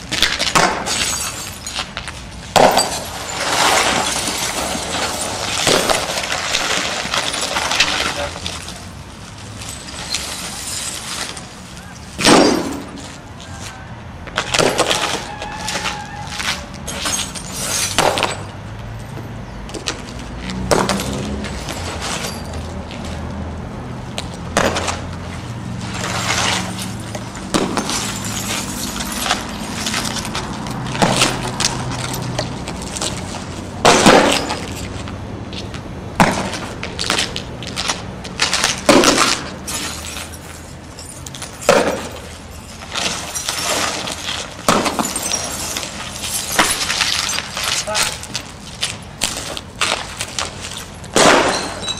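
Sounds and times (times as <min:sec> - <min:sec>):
glass crunching and cracking: 0:00.0 - 0:13.1, 0:26.1 - 0:35.0, 0:37.0 - 0:51.9.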